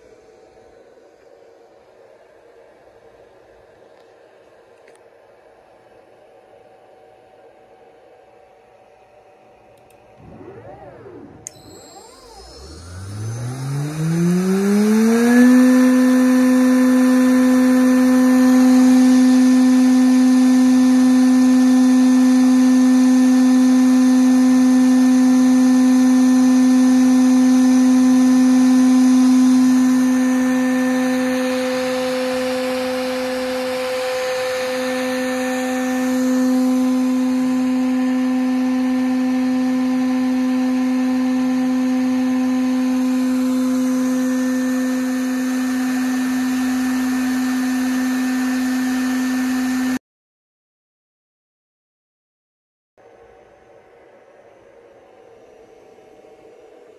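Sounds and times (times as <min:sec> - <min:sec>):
electric motor whine: 0:10.2 - 0:50.0.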